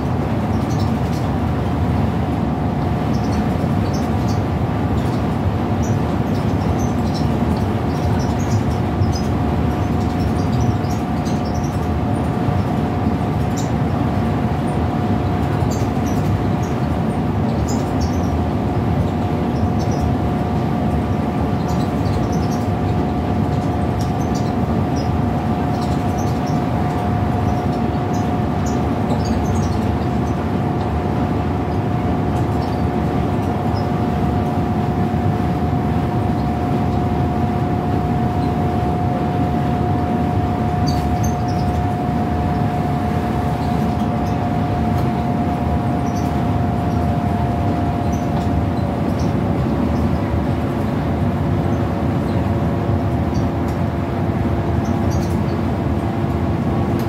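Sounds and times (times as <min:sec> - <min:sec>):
bus engine and road drone: 0:00.0 - 0:57.0
high whine: 0:18.2 - 0:57.0.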